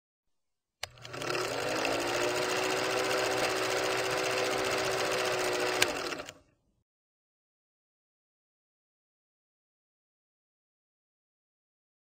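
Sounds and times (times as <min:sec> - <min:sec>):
film projector clatter: 0:00.8 - 0:06.4
motor hum: 0:00.8 - 0:06.4.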